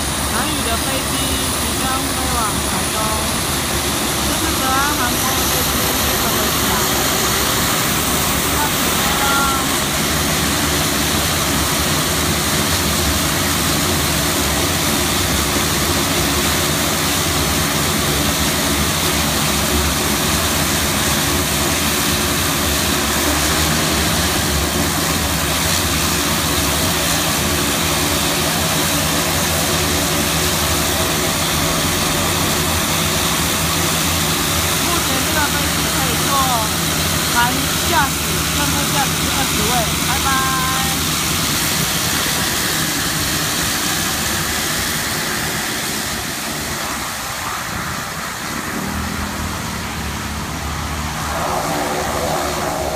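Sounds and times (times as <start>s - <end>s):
turboprop engines droning: 0.0s - 52.9s.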